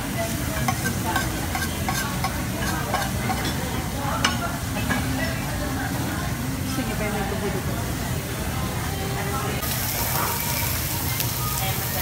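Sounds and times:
food sizzling in a pan: 0.0 - 4.6, 9.6 - 12.0.

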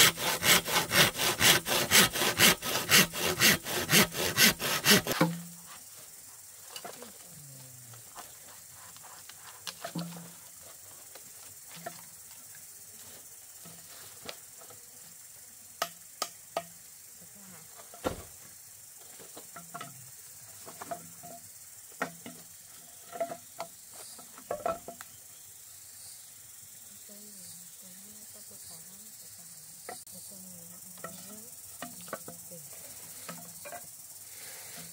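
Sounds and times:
bamboo poles knocking: 0.0 - 5.6, 9.7 - 10.4, 22.0 - 22.5, 23.1 - 25.1
steady high hiss: 4.8 - 34.9.

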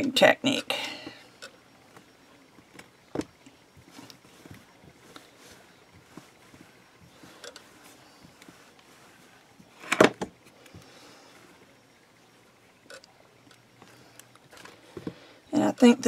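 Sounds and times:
hands rubbing clay on a sheet: 3.8 - 9.7.

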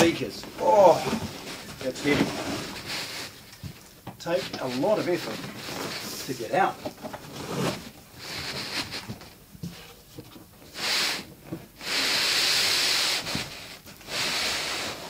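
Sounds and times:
cardboard scraping against cardboard: 0.6 - 3.4, 4.2 - 9.2.

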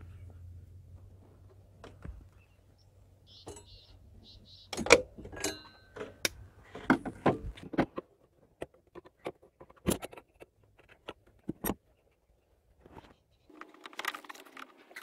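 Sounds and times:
metal hose clamps clinking: 4.8 - 6.3.

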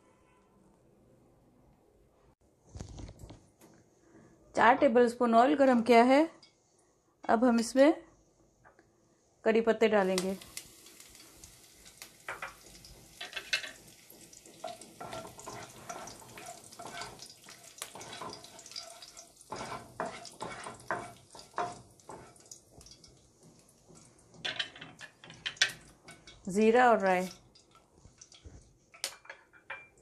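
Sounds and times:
leaves sizzling in hot oil: 9.9 - 29.2
spatula stirring in pan: 10.5 - 29.6.

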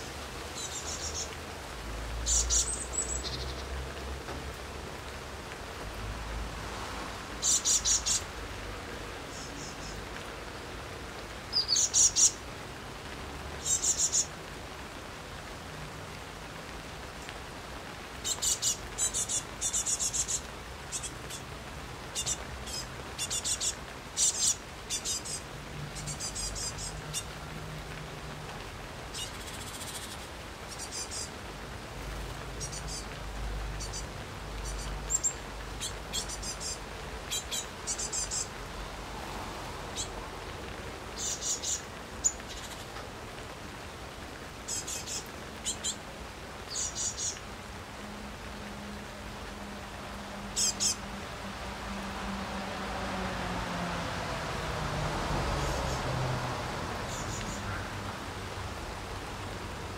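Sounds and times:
light rain: 0.0 - 59.9
small bird chirping and trilling: 2.3 - 3.6, 7.4 - 8.2, 11.5 - 12.4, 22.2 - 25.4, 33.8 - 34.0, 34.6 - 38.5, 46.7 - 47.4, 50.6 - 51.0.

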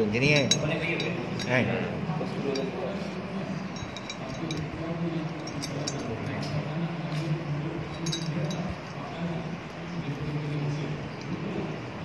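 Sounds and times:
steady low hum: 0.0 - 12.0
metal parts clinking: 0.2 - 1.6, 3.7 - 7.3, 7.9 - 8.8.

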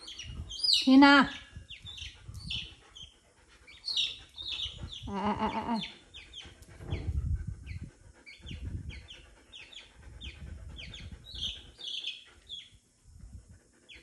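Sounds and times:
chick peeping: 0.0 - 3.1, 3.7 - 12.7
low rumbling noise: 4.5 - 11.8.

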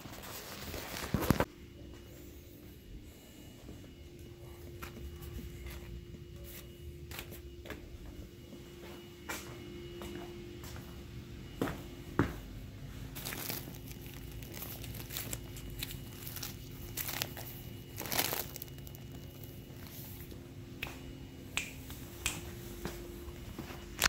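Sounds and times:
vinyl inflatables crinkling: 0.0 - 1.5, 13.1 - 20.4
faint steady hum: 0.0 - 24.0.

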